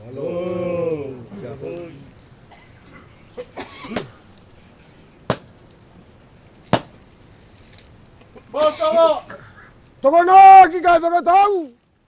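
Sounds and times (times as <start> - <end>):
cough-like vocal sound: 2.5 - 4.2.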